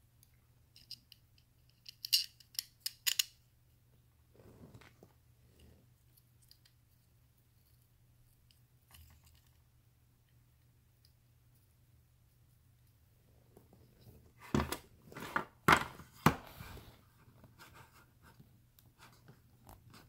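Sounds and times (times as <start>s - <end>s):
small screws clicking: 0.8s - 3.4s.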